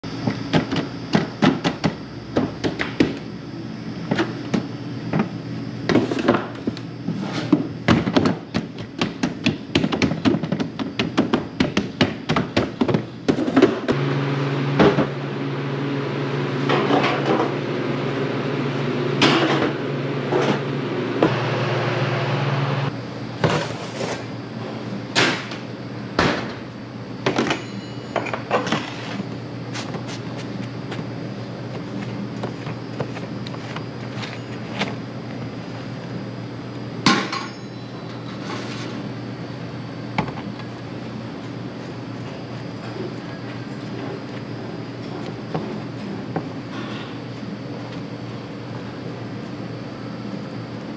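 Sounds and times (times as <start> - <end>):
steady low hum: 0.0 - 50.9
plastic trays knocking and clattering: 7.9 - 13.8.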